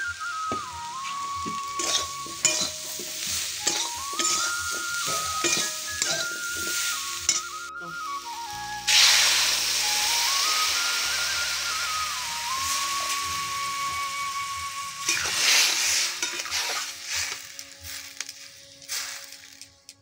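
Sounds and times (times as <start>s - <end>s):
background music: 0.0s - 20.0s
light sizzle: 0.0s - 20.0s
water hissing in hot pan: 0.0s - 20.0s
metal spatula scraping a pan: 1.1s - 7.6s, 15.0s - 19.6s.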